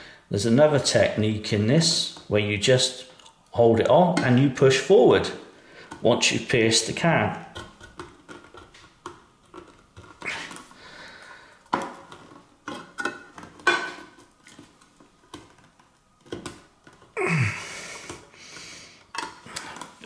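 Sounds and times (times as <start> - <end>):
person breathing: 0.0 - 0.3, 5.5 - 6.0, 10.2 - 11.7, 17.2 - 19.9.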